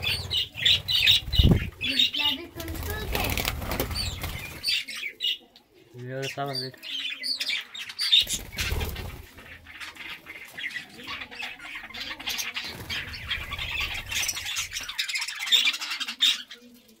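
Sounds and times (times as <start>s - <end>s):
wing flapping: 0.0s - 4.7s, 8.2s - 9.6s
budgerigars chattering and squawking: 0.0s - 16.8s.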